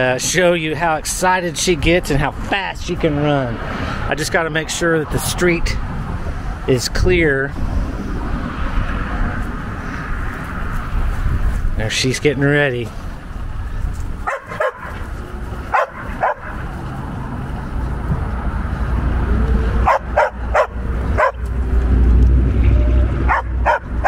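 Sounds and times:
dog barking: 0:14.2 - 0:15.0, 0:15.7 - 0:16.6, 0:19.8 - 0:21.4, 0:23.3 - 0:24.0
low rumble: 0:20.8 - 0:23.3.

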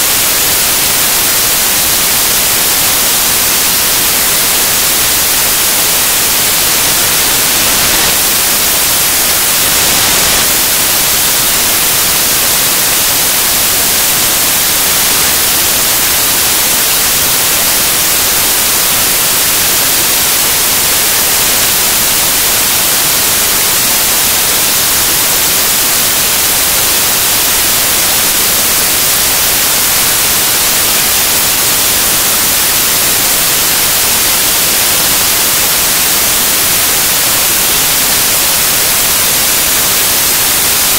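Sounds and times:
static hiss: 0:00.0 - 0:40.9.

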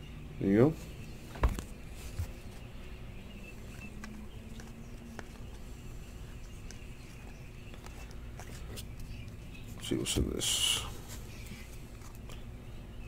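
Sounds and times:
low steady hum: 0:00.0 - 0:13.0
trading cards clicking and sliding: 0:03.4 - 0:09.6.

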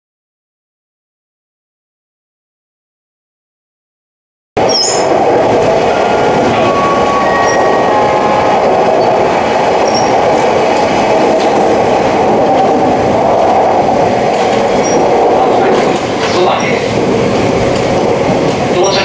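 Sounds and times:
train wheels rumbling on rail: 0:04.6 - 0:19.0.

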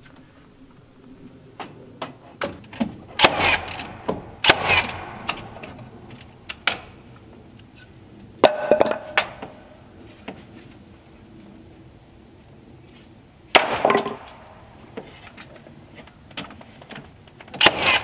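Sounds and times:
wooden boards knocking and clattering: 0:08.4 - 0:09.6, 0:13.6 - 0:15.2.

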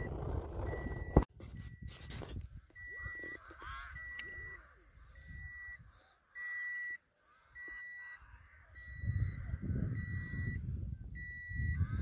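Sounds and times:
low rumbling noise: 0:00.0 - 0:01.3
electronic beeper high tone: 0:00.0 - 0:02.0, 0:02.8 - 0:05.8, 0:08.8 - 0:12.0.

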